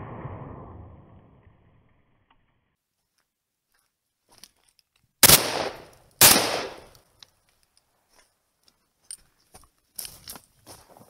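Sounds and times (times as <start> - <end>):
shotgun shots with echo: 5.2 - 6.9.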